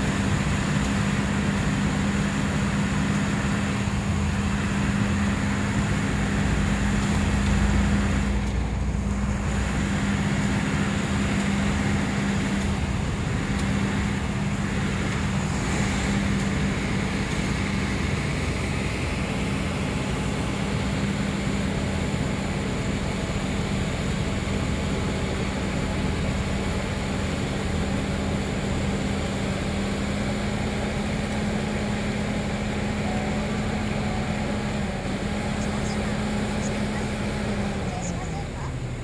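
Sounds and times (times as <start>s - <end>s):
cars passing: 0.0s - 23.2s
diesel engine drone: 0.0s - 39.0s
snow blower rushing: 0.0s - 39.0s.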